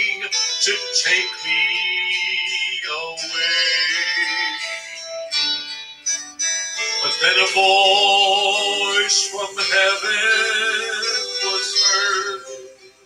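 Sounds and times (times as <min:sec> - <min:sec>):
man singing gospel through speakers: 0:00.0 - 0:04.8, 0:07.0 - 0:12.7.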